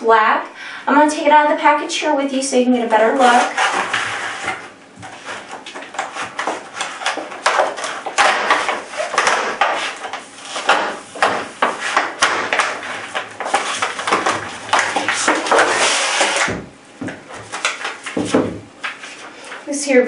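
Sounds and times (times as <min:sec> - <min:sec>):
sharp knocks: 0:10.6 - 0:17.3.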